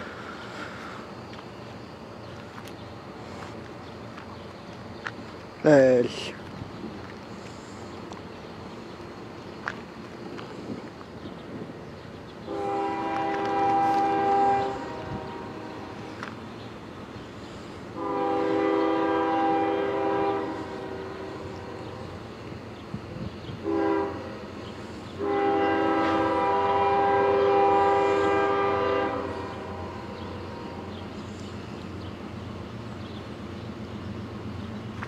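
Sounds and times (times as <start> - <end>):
train rumbling: 0.0 - 35.0
locomotive air horn blasts: 12.5 - 16.1, 17.9 - 22.2, 23.6 - 24.5, 25.2 - 30.9.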